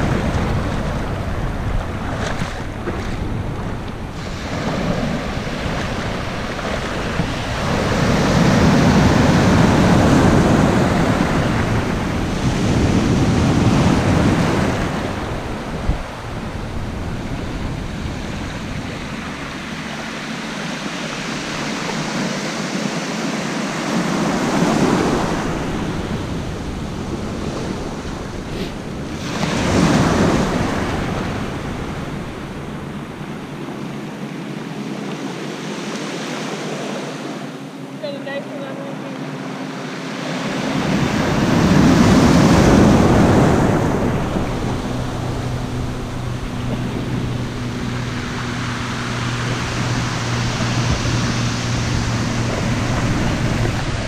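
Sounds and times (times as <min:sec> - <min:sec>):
wind buffeting microphone: 0:00.0 - 0:38.0, 0:39.2 - 0:54.0
surf washing over sandy shore: 0:00.0 - 0:54.0.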